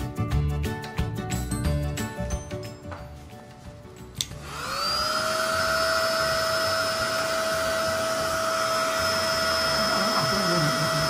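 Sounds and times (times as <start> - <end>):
hair dryer switch click: 4.2 - 4.4
hair dryer motor whining: 4.2 - 11.0.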